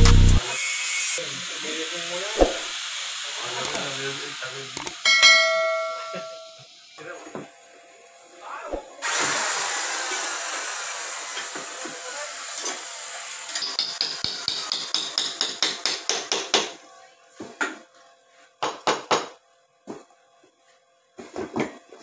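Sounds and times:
hiss: 0.4s - 4.9s, 9.0s - 15.8s.

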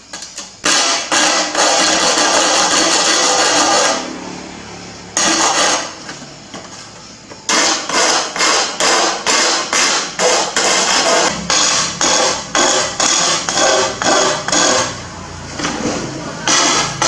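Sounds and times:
stone rasping on glass edge: 7.5s - 15.0s.

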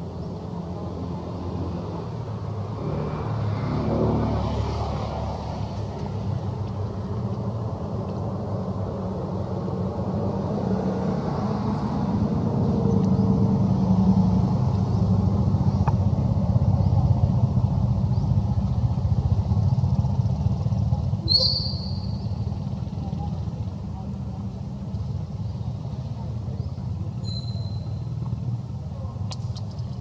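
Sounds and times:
brief high squeak: 27.2s - 28.0s.

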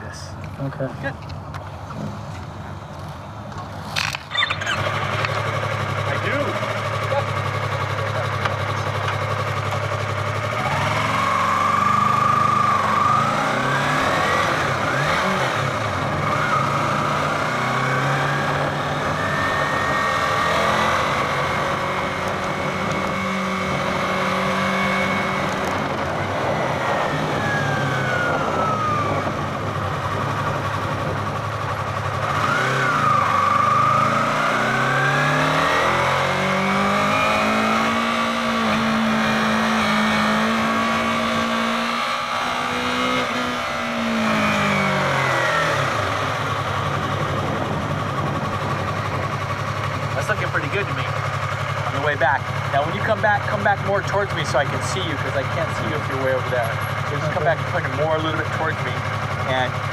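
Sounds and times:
motorcycle engine revving: 1.8s - 59.9s.

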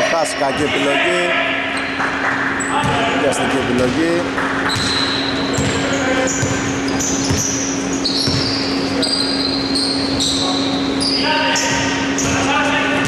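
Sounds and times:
steady low hum: 0.0s - 13.0s
basketball bouncing on hardwood: 4.7s - 5.8s, 7.2s - 7.6s, 8.2s - 8.6s.

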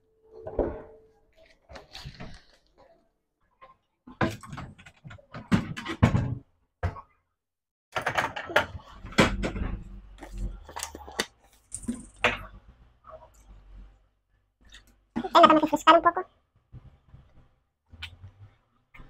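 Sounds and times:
cupboard door opening and closing: 4.2s - 7.1s, 8.0s - 10.6s.

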